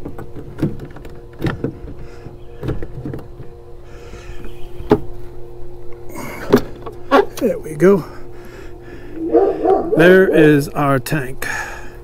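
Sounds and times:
plastic tank knocking and creaking: 0.0s - 3.5s
steady low hum: 0.0s - 12.0s.

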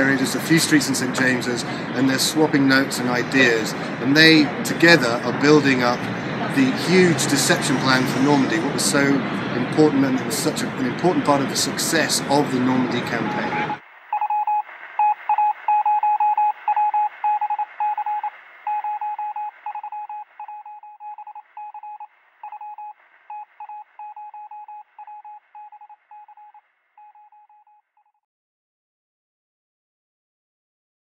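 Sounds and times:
morse code beeps: 12.9s - 27.8s.

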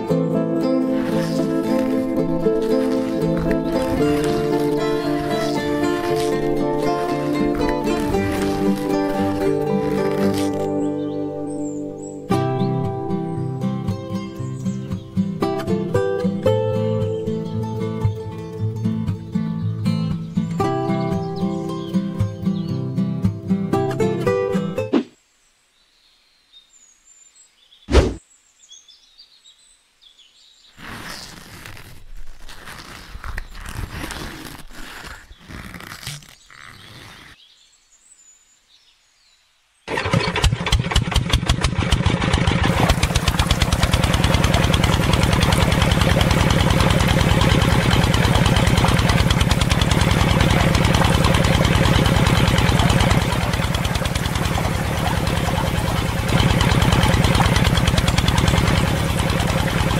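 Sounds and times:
thump: 27.9s - 28.2s
model engine running: 39.9s - 59.9s.

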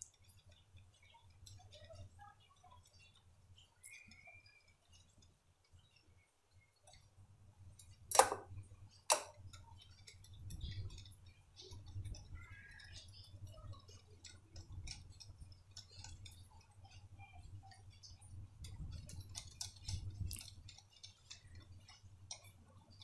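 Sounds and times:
whisk clicking against glass bowl: 9.1s - 23.0s.

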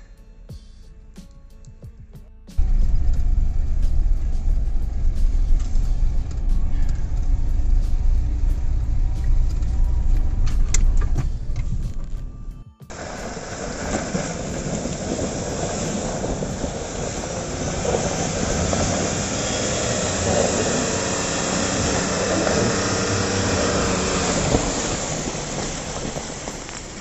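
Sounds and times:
engine running hard under load: 2.6s - 12.3s, 12.9s - 27.0s
muddy water splashing: 12.9s - 27.0s
tyres spinning in mud: 12.9s - 27.0s.

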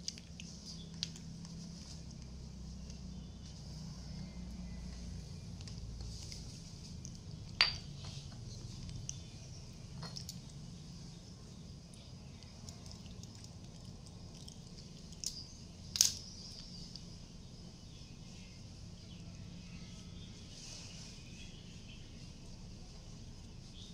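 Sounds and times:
low steady hum: 0.0s - 23.9s
small hard objects clicking: 12.0s - 17.1s.

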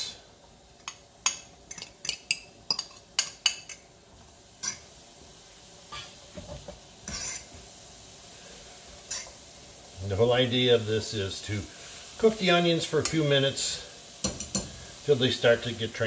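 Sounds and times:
faint sizzle: 0.0s - 16.0s
fork scraping in pot: 7.1s - 7.5s, 9.1s - 9.3s.

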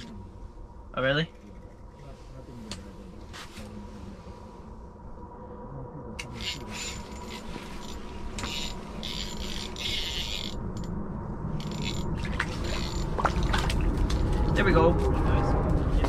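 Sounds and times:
airplane rumble: 0.0s - 16.0s
fishing reel whirring: 6.2s - 10.9s, 11.6s - 13.2s.

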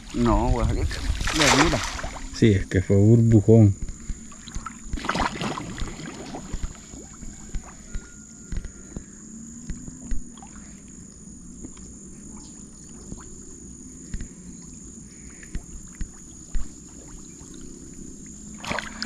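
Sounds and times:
shallow water sloshing: 0.0s - 2.5s, 3.7s - 8.1s, 12.4s - 19.0s.

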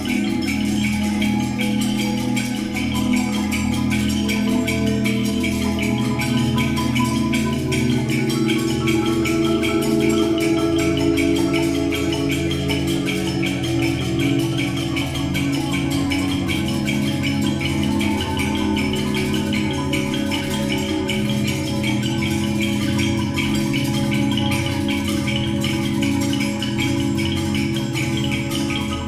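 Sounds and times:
marimbas playing quick mallet notes: 0.0s - 29.0s.

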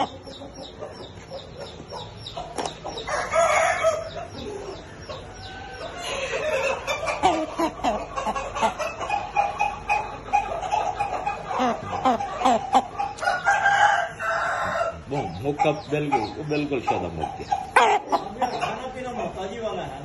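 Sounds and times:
chickens clucking: 0.0s - 20.0s
rooster crowing: 3.1s - 4.2s, 13.2s - 15.0s.

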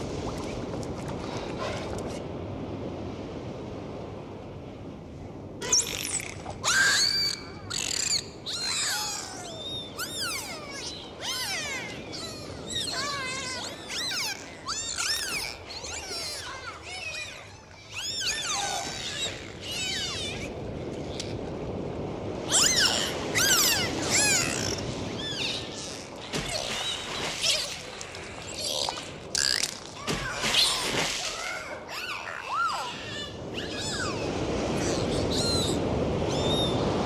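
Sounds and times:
dolphins whistling underwater: 5.6s - 20.5s, 22.5s - 27.7s, 30.5s - 36.8s.

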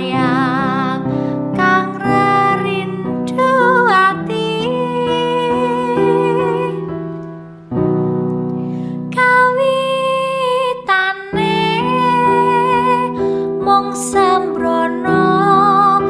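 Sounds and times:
woman singing with vibrato: 0.0s - 7.0s, 9.1s - 16.0s
sustained keyboard chords: 0.0s - 10.1s.

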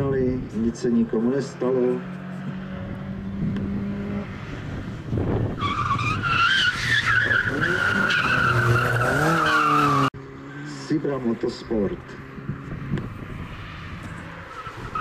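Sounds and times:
rally car engine revving: 0.4s - 15.0s
tyres squealing: 5.6s - 10.1s.

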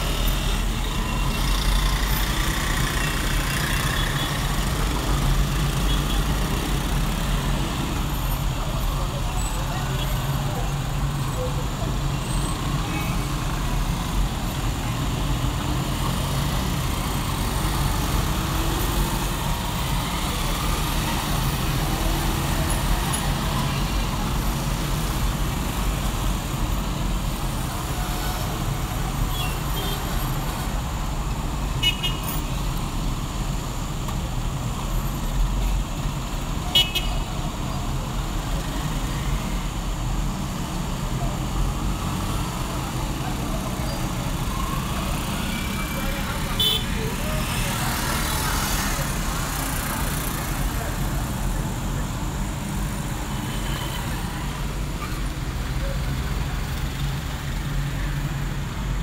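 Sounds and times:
rumble of passing vehicles: 0.0s - 59.0s.

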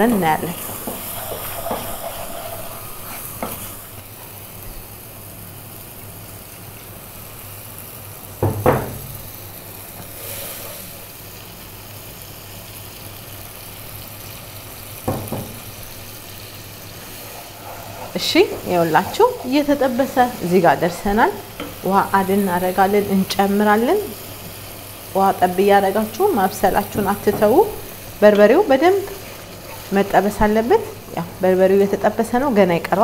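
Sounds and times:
wooden spoon scraping a pot: 0.0s - 3.8s, 16.9s - 21.8s
spice paste sizzling in a pot: 0.0s - 33.0s.

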